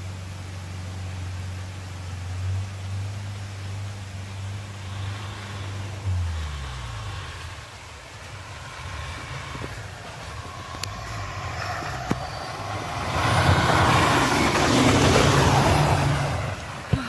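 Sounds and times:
suv engine rumble: 0:00.0 - 0:17.0
tyres rushing through snow: 0:02.1 - 0:17.0.

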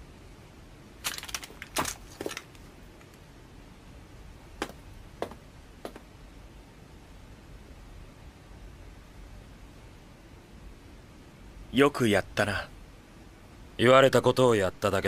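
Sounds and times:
plate armour clinking: 0:01.0 - 0:02.6
single footsteps: 0:04.6 - 0:06.1.

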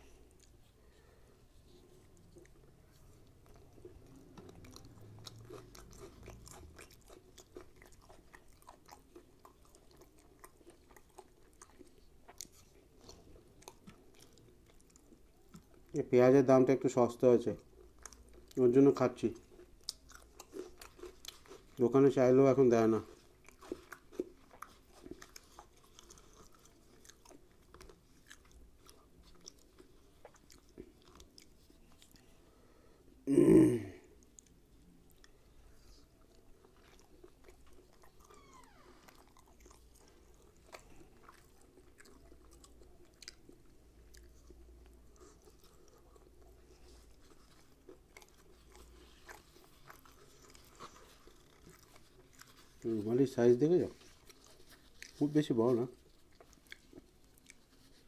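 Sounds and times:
person chewing with mouth smacks: 0:00.0 - 0:16.0, 0:17.6 - 0:32.6, 0:33.2 - 0:58.0
faint steady hum: 0:00.0 - 0:21.9, 0:22.9 - 0:58.0
soft tearing of bread: 0:34.1 - 0:58.0.

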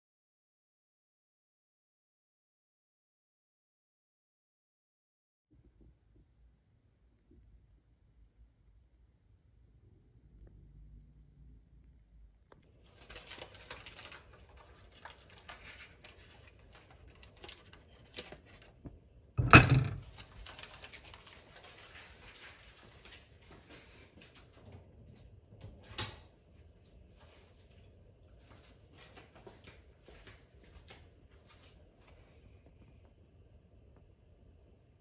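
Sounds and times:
cookware knocking: 0:19.4 - 0:20.0.

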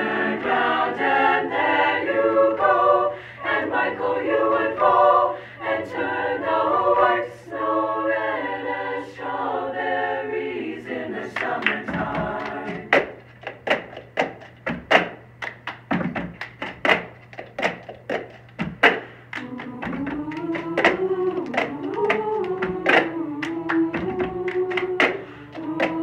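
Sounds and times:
choir singing sustained chords: 0:00.0 - 0:13.2, 0:19.4 - 0:26.0.

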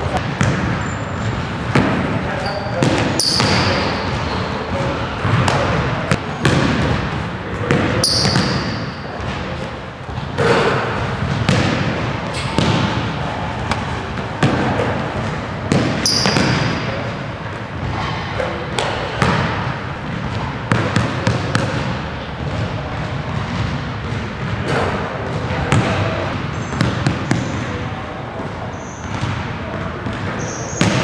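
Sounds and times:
basketball hitting the rim: 0:00.2 - 0:17.2, 0:18.8 - 0:27.9, 0:28.9 - 0:31.0
basketball bouncing on hardwood floor: 0:00.4 - 0:02.0, 0:05.2 - 0:07.1, 0:07.7 - 0:09.4, 0:11.2 - 0:12.0, 0:12.6 - 0:13.0, 0:14.4 - 0:16.8, 0:29.1 - 0:29.4, 0:30.8 - 0:31.0.

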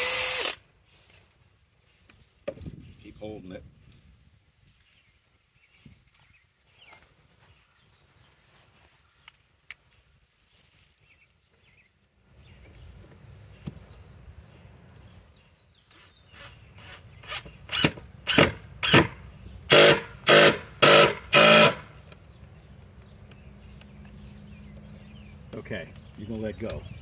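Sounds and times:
power driver driving screw into wood: 0:00.0 - 0:00.6, 0:15.9 - 0:22.0.

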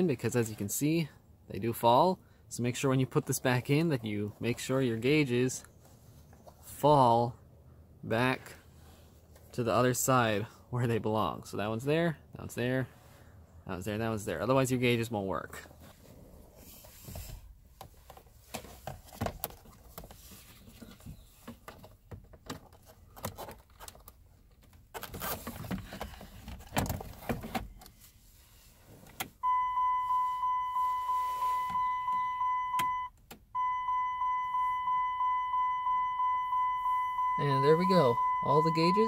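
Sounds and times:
electronic warning chime beeping: 0:29.4 - 0:39.0.

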